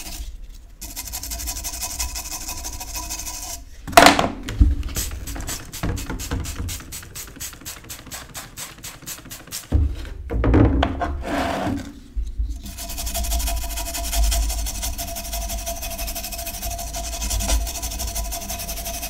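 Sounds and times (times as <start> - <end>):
iron thump: 3.9 - 6.7, 9.7 - 11.2
spray bottle squirting: 4.8 - 9.8
wire brush scrubbing iron: 5.0 - 9.8, 12.7 - 19.0.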